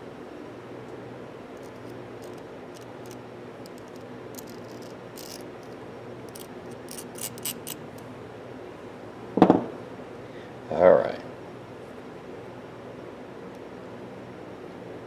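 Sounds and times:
low background hum: 0:00.0 - 0:15.0
ratchet parts clicking: 0:01.6 - 0:07.8.

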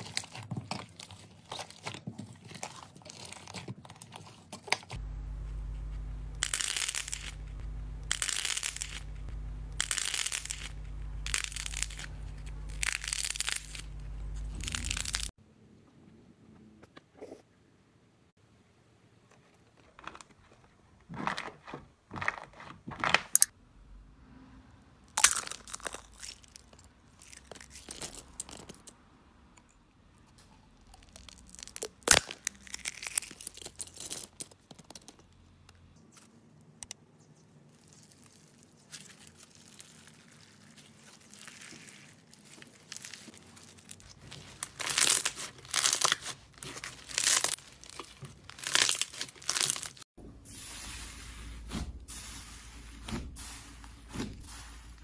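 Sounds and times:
slime crackling and tearing: 0:06.4 - 0:15.3, 0:25.1 - 0:28.9, 0:30.8 - 0:35.2, 0:37.7 - 0:50.1.

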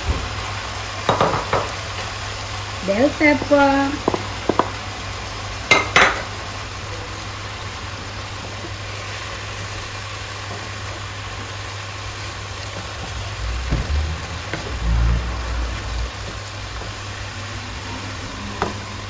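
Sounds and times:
vegetables sizzling in a frying pan: 0:00.0 - 0:19.0
wooden spatula knocking on pan: 0:01.1 - 0:01.8, 0:03.4 - 0:04.8.

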